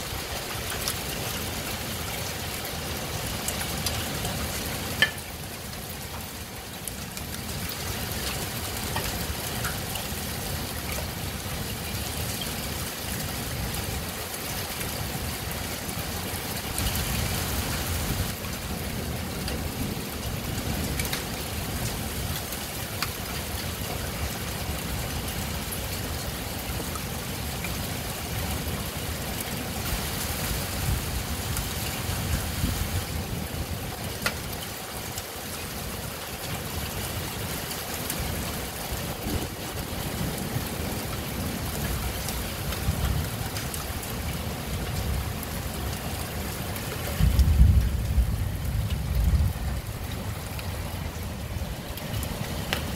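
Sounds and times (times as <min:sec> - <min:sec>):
heavy rain falling: 0:00.0 - 0:52.9
thunder rumbling: 0:39.1 - 0:41.6, 0:47.2 - 0:52.9.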